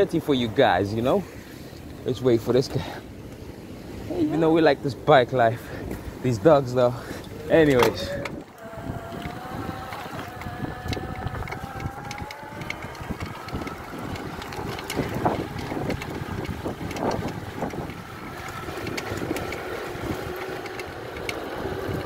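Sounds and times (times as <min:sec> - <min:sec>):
tyre and wind noise: 0:00.0 - 0:22.0
electric hub motor whining: 0:07.2 - 0:22.0.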